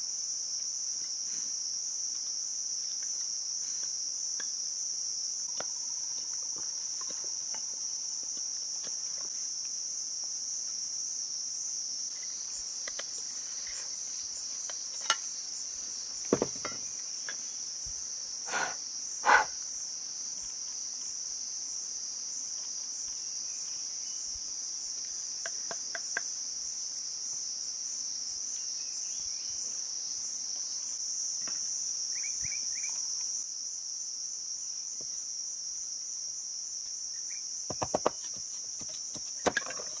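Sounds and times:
knife knocking on bamboo: 0:16.3 - 0:16.8, 0:37.7 - 0:39.8
high-pitched insect drone: 0:32.1 - 0:33.5.

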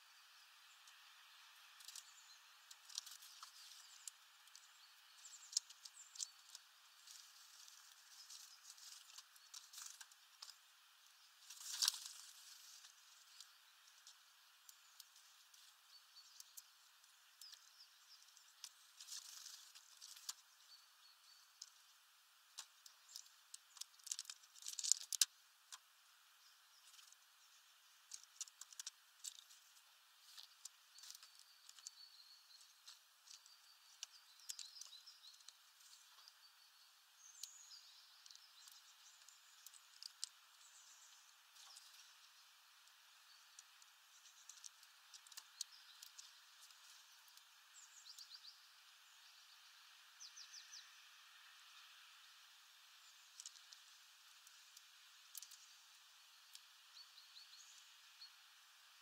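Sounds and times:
birds pecking seeds: 0:00.0 - 0:59.0
seed husks rustling: 0:01.8 - 0:20.6, 0:21.5 - 0:25.9, 0:26.7 - 0:48.2.

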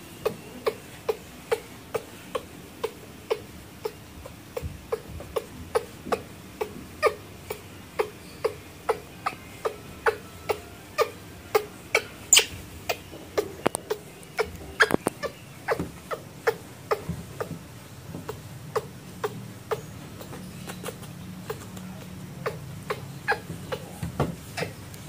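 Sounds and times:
baby monkey crying: 0:00.0 - 0:17.6, 0:18.2 - 0:24.8.

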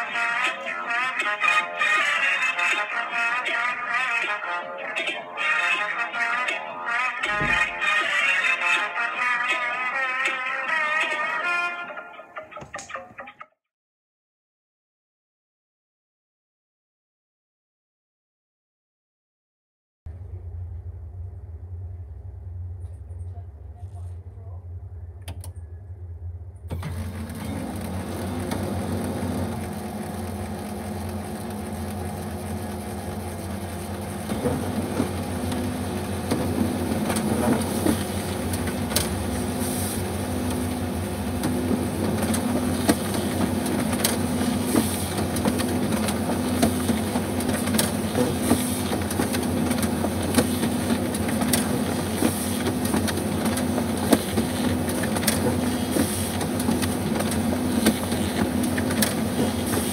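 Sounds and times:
printer paper feed clicks: 0:26.7 - 0:39.4, 0:40.4 - 0:59.9
laser printer humming: 0:26.8 - 0:59.9.

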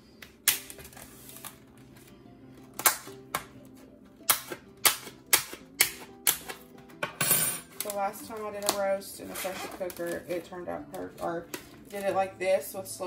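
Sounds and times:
soft background music: 0:00.0 - 0:13.0
plastic wrap snapping and tearing: 0:00.2 - 0:02.0, 0:02.6 - 0:03.5, 0:04.2 - 0:06.7, 0:07.7 - 0:12.2.

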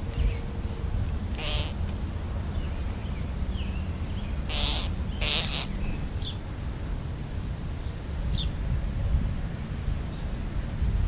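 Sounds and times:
steady low rumble: 0:00.0 - 0:11.0
short harsh bird calls: 0:01.4 - 0:01.8, 0:04.5 - 0:06.0.

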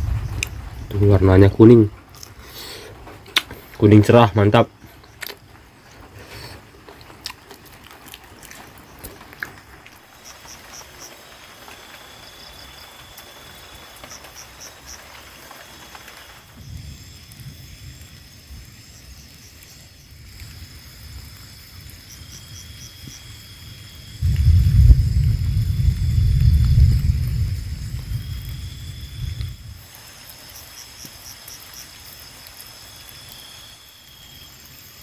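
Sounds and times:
low rumble: 0:00.0 - 0:02.2, 0:24.2 - 0:29.8
insects chirping: 0:00.0 - 0:35.0.

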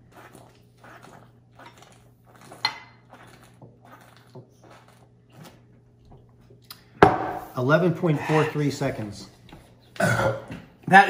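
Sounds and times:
person gulping from bottle: 0:09.9 - 0:10.6.

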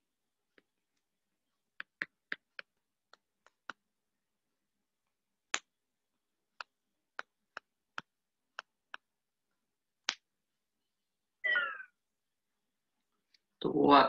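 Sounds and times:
stylus tapping on a tablet: 0:01.7 - 0:03.9, 0:06.5 - 0:09.2.

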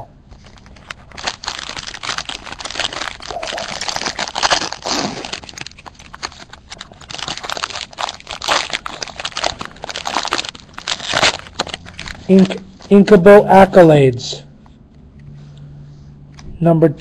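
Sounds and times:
foil wrapper crinkling: 0:00.3 - 0:12.9.

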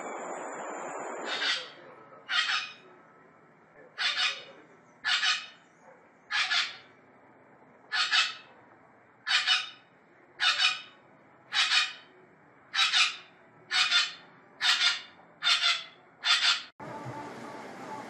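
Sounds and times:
parrot harsh calls: 0:01.2 - 0:02.8, 0:04.0 - 0:05.6, 0:06.3 - 0:06.9, 0:07.9 - 0:08.5, 0:09.2 - 0:12.1, 0:12.7 - 0:16.7.

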